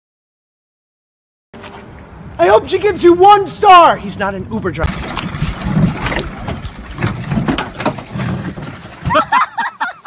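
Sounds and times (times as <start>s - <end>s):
water splashing: 4.8s - 10.0s
canoe knocking against wooden dock: 4.9s - 9.5s.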